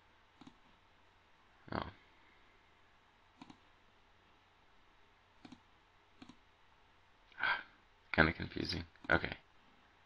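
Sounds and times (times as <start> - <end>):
computer mouse clicks: 0.4 - 0.7, 3.3 - 3.7, 5.4 - 6.4.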